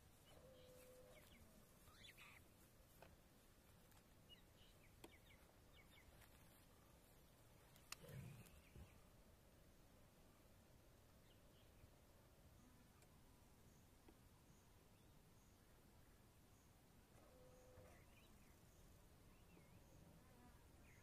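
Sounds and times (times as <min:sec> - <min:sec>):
soft bird chirps: 0:00.1 - 0:02.6, 0:04.2 - 0:09.1, 0:16.5 - 0:21.0.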